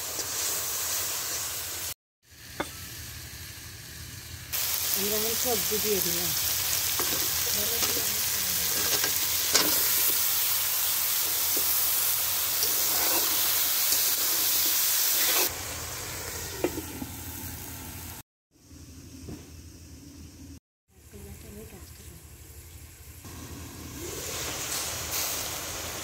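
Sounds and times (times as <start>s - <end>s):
vegetables sizzling in oil: 0.0s - 18.2s, 21.0s - 26.0s
metal spatula scraping a wok: 12.6s - 15.5s.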